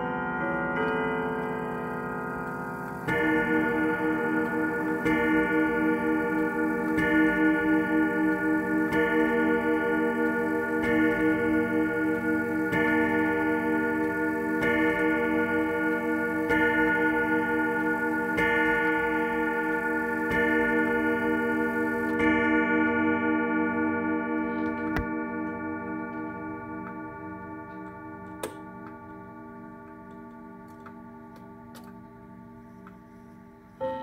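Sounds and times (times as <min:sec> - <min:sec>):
clock chime strikes: 0:00.0 - 0:34.0
clock ticking: 0:00.8 - 0:22.3.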